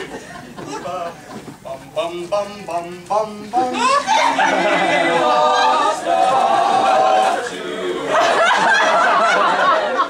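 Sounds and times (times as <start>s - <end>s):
audience laughter: 0.0s - 1.2s, 3.8s - 6.0s, 8.0s - 10.0s
men singing together: 1.7s - 9.5s.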